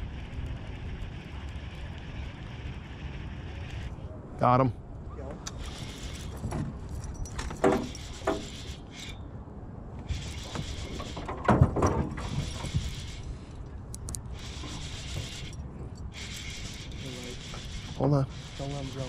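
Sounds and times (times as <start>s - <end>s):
fishing reel cranking: 14.4s - 19.0s.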